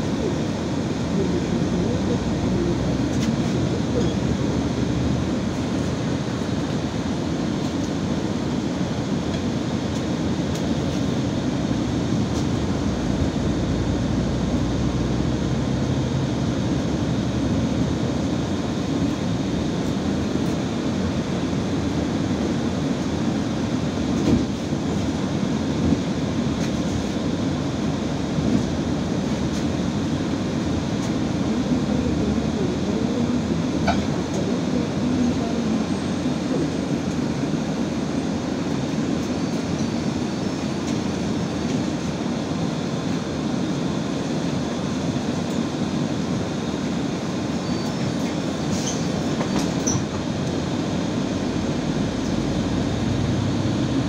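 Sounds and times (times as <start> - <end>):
bus engine rumble from inside: 0.0 - 54.0.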